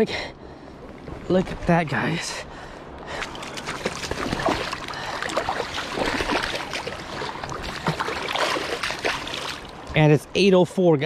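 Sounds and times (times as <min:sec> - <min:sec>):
river water splashing: 0:03.0 - 0:09.9.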